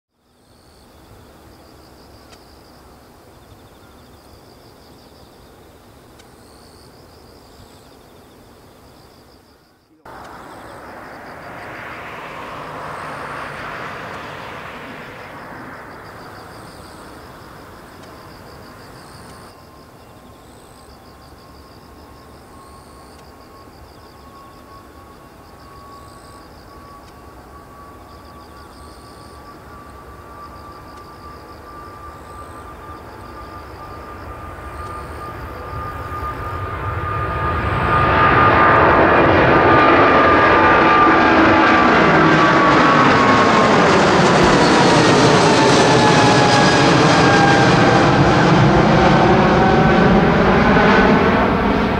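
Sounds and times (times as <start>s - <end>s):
thin rising whine: 10.0s - 20.0s, 22.6s - 51.9s
jet engines roaring: 10.1s - 20.0s, 22.1s - 51.9s.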